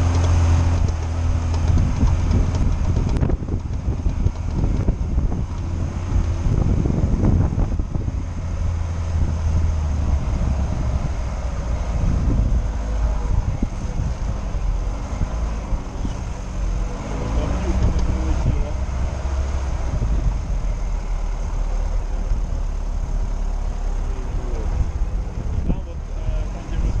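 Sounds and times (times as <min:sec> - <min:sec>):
car engine drone: 0:00.0 - 0:27.0
car body knocks and rattles: 0:00.1 - 0:06.3.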